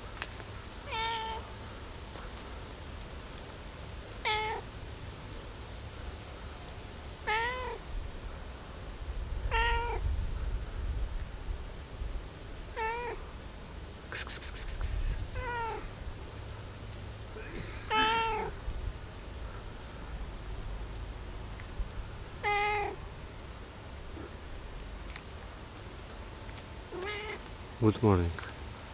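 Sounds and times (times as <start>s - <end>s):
cat meowing: 0.9s - 1.4s, 4.2s - 4.6s, 7.2s - 7.8s, 9.5s - 10.0s, 12.8s - 13.2s, 15.0s - 15.9s, 17.9s - 18.6s, 22.4s - 23.0s, 26.9s - 27.4s.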